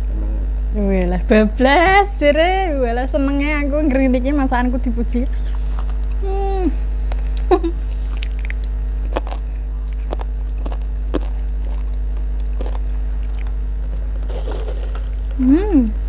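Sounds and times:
steady low hum: 0.0 - 16.0
close chewing: 5.5 - 6.2, 7.1 - 15.1
mouth clicks: 7.1 - 12.0.

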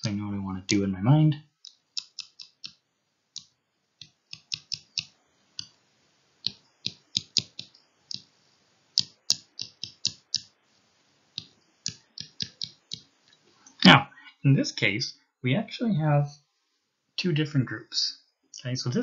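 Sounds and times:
stylus tapping on pen tablet: 1.6 - 2.8, 3.4 - 5.8, 6.4 - 8.3, 8.9 - 10.5, 11.4 - 13.1.

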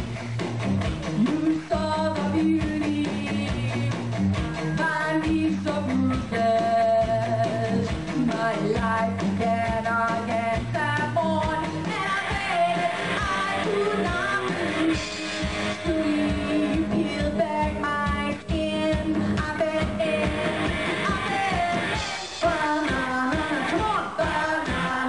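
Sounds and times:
drum kit: 0.0 - 25.0
electric guitar: 0.0 - 25.0.

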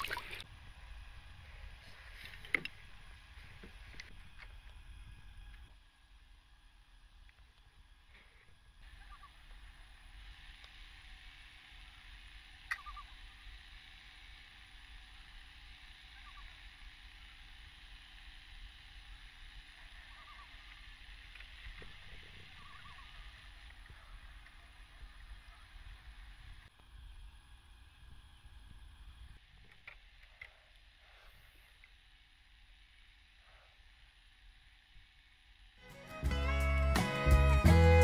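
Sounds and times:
distant bird calls: 8.8 - 9.8, 12.6 - 13.4, 16.0 - 16.8, 19.7 - 26.3.

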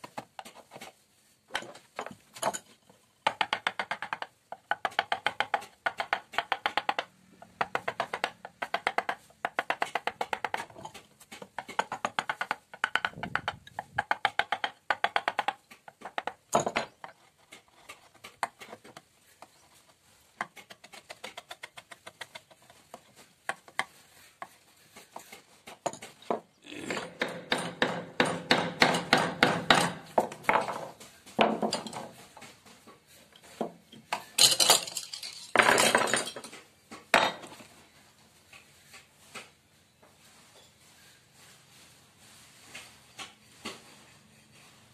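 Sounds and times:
mallet tapping a chisel into wood: 27.2 - 30.3.

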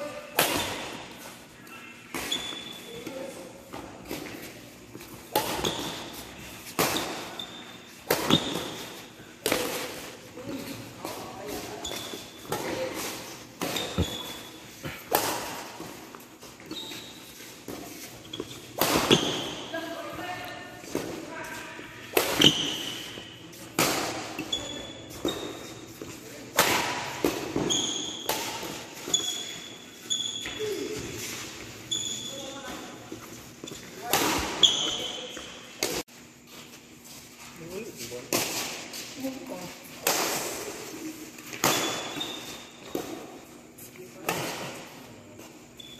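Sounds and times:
shoes squeaking on court: 0.0 - 45.9
badminton racket hitting shuttlecock: 18.4 - 19.7, 22.1 - 25.6.

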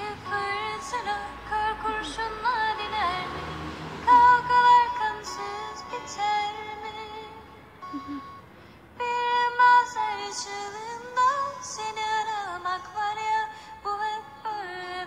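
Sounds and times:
high voice singing long notes: 0.0 - 8.4.

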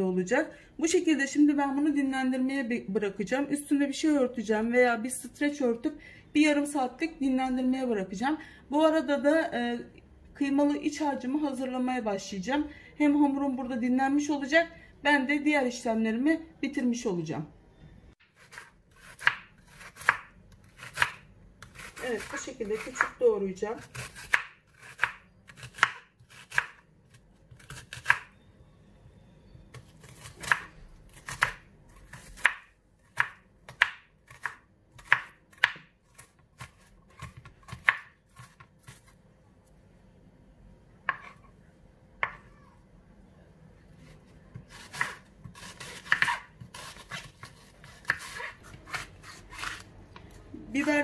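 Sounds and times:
knife chopping on wooden board: 18.4 - 23.1, 23.8 - 26.8, 29.8 - 39.1, 41.1 - 41.4, 42.2 - 42.4, 44.5 - 49.8.

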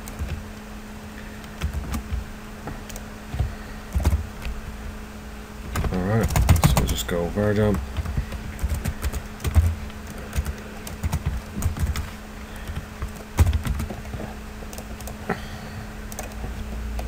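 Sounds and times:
computer keyboard typing: 0.0 - 0.4, 1.4 - 2.2, 2.8 - 4.3, 5.7 - 15.2, 16.0 - 17.0
low hum: 0.0 - 17.0.

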